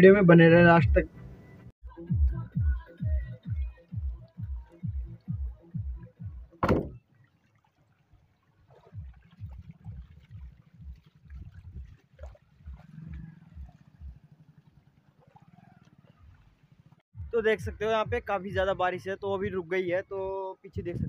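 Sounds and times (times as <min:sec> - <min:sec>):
electronic music with kick drum: 0:01.8 - 0:07.0, 0:17.2 - 0:18.8
loud knock: 0:06.6 - 0:07.0.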